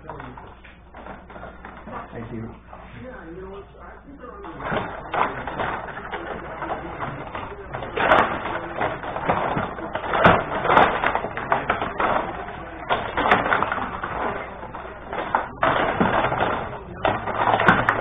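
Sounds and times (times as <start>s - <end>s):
rod hockey table clatter: 4.4s - 18.0s.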